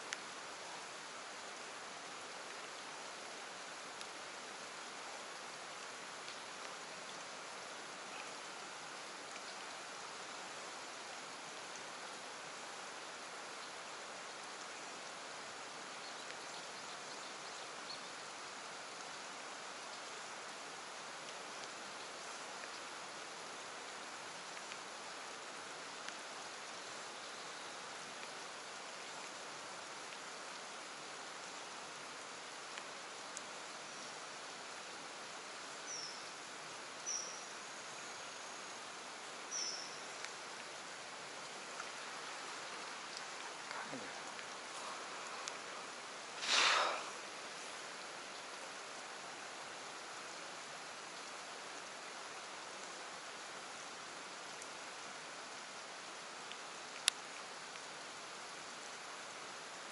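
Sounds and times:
faint ticks: 0:00.0 - 0:00.4, 0:02.4 - 0:02.9, 0:03.8 - 0:04.3, 0:05.3 - 0:10.2, 0:13.0 - 0:18.3, 0:21.2 - 0:23.2, 0:24.0 - 0:34.3, 0:37.0 - 0:48.8, 0:52.7 - 0:58.0
soft hiss of water: 0:00.0 - 0:59.9.

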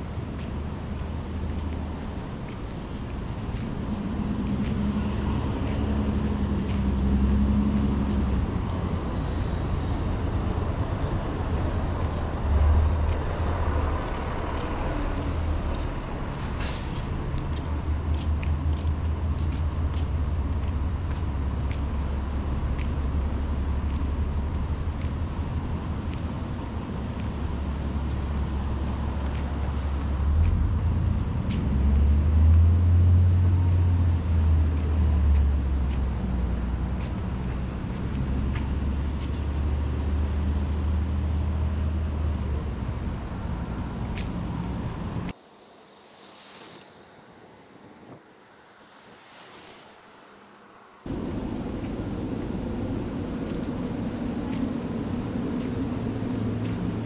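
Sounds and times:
traffic rumbling past: 0:00.0 - 0:57.0
short hiss: 0:16.4 - 0:17.0, 0:45.8 - 0:47.5.

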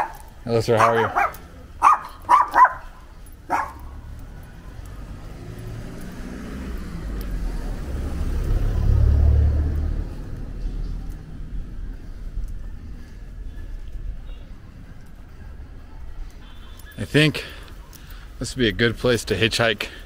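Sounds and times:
dog yapping: 0:00.8 - 0:03.8
car driving past: 0:03.7 - 0:11.8.

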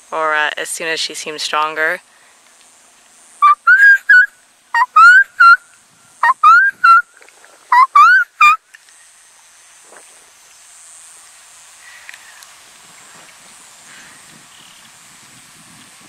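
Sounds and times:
person whistling quail call: 0:03.4 - 0:05.6, 0:06.2 - 0:07.1, 0:07.7 - 0:08.6.

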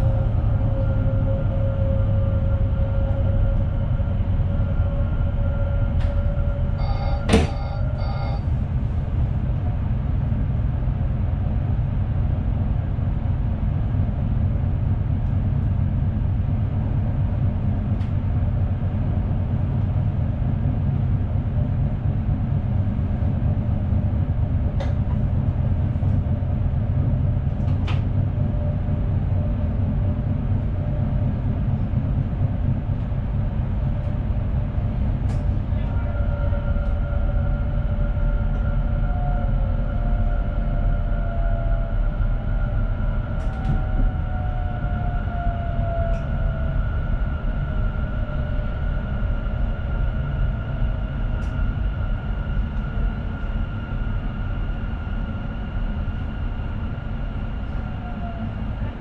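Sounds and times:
train running rumble: 0:00.0 - 0:59.0
short beep: 0:06.8 - 0:08.4.

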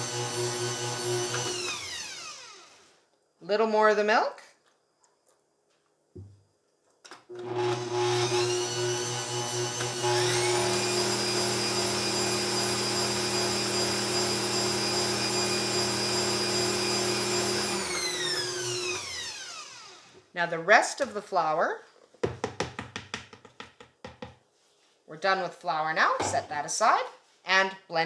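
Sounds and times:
stand mixer motor whisking: 0:00.0 - 0:02.7, 0:07.3 - 0:20.1.

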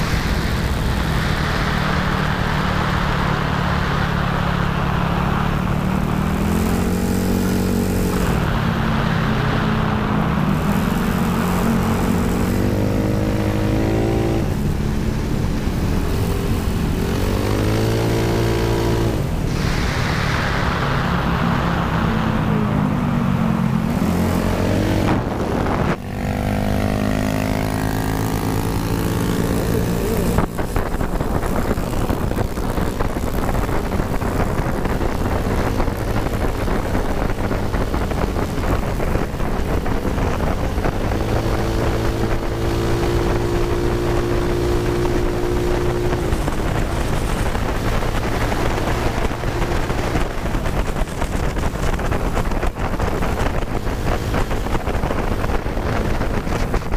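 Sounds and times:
scooter engine running: 0:00.0 - 0:19.7, 0:22.5 - 0:56.9
wind noise on microphone: 0:00.0 - 0:56.9.

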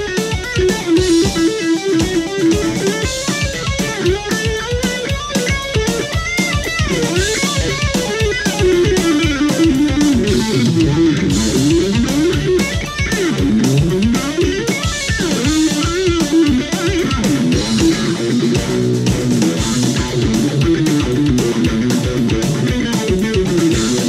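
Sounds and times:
backing track drums and bass: 0:00.0 - 0:24.0
electric guitar melodic runs: 0:00.0 - 0:24.0.

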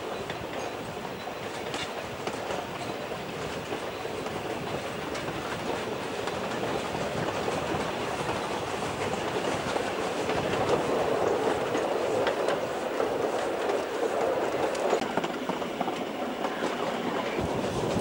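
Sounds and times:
train wheels rolling on rails: 0:00.0 - 0:18.0.

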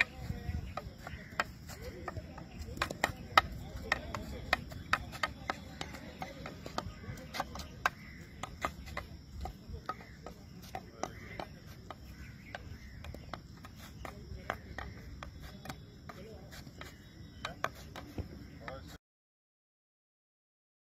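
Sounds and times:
hockey stick tapping ball: 0:00.0 - 0:16.2.

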